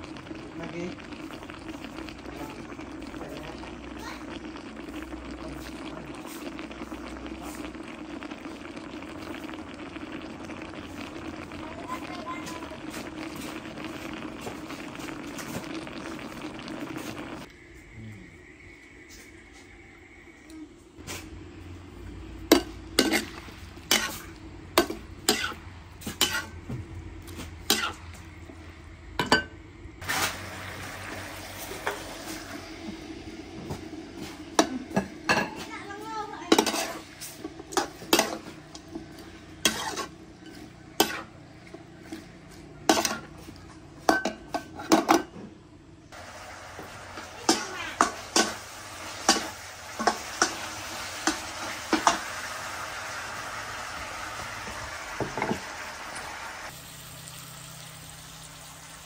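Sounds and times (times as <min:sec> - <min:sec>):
food sizzling in a wok: 0:00.0 - 0:20.4, 0:21.0 - 0:45.4, 0:46.0 - 0:59.0
metal spoon scraping a pan: 0:22.5 - 0:26.6, 0:27.4 - 0:28.0, 0:36.5 - 0:38.6, 0:39.2 - 0:41.4, 0:42.1 - 0:45.1
spoon clanking on pan: 0:47.2 - 0:48.6, 0:49.3 - 0:50.6.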